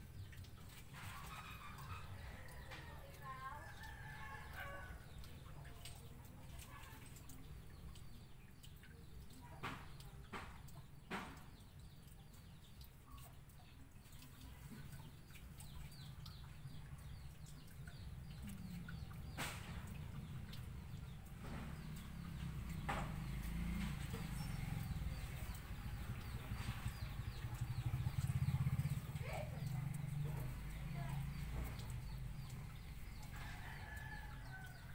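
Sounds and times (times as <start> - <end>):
chickens clucking: 0.4 - 5.9.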